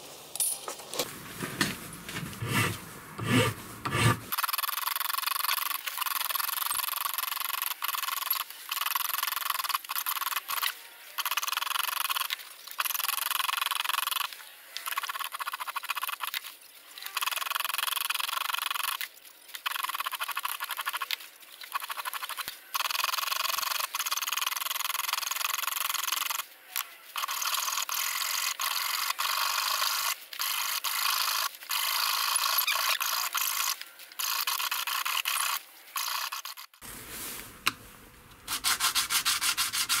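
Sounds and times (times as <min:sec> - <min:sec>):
hand file rasping on brass: 0:02.4 - 0:04.3, 0:38.5 - 0:40.0.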